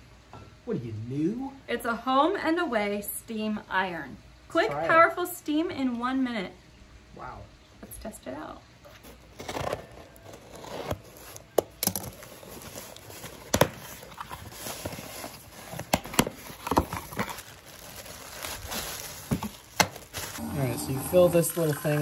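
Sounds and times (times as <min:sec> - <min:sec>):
cardboard box being handled: 0:08.9 - 0:20.4
plastic wrap crinkling: 0:08.9 - 0:21.4.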